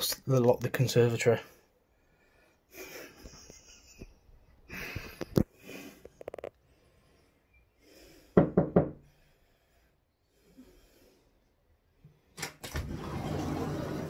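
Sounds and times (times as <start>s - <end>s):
knuckles knocking on glass door: 8.4s - 9.0s.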